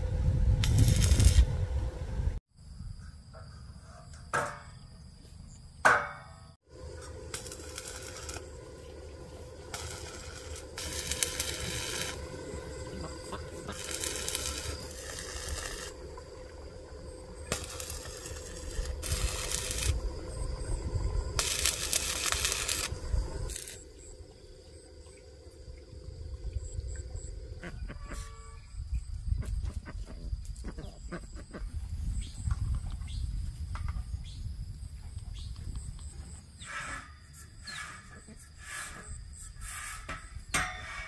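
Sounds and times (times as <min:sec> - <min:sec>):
welding arc crackling and hissing: 0:00.0 - 0:02.4, 0:06.7 - 0:24.2.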